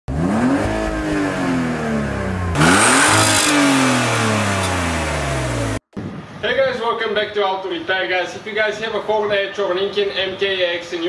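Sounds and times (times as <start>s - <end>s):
car engine revving: 0.1s - 5.8s.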